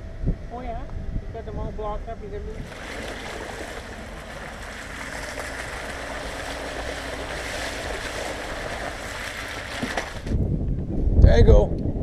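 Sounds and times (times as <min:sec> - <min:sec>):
low engine hum: 0:00.0 - 0:11.0
tyres rushing through mud: 0:02.6 - 0:10.4.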